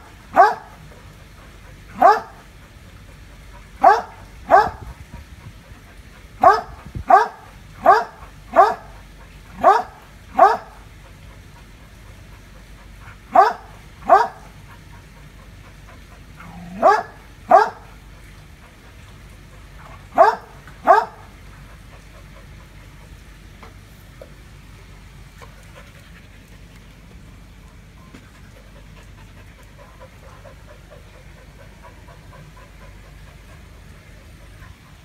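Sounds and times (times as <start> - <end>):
dog barking: 0.3 - 0.8, 2.0 - 2.4, 3.8 - 4.8, 6.4 - 8.9, 9.6 - 10.8, 13.3 - 14.5, 16.5 - 17.9, 20.1 - 21.3.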